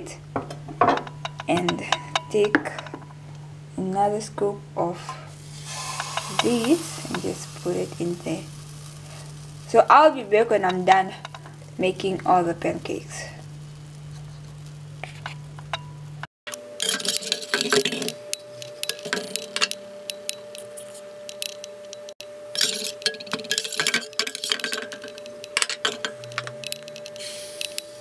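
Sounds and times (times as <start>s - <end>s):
steady low hum: 0.0s - 28.0s
utensils scraping frying pan: 5.0s - 9.8s, 13.9s - 16.0s, 16.8s - 21.7s, 22.6s - 27.8s.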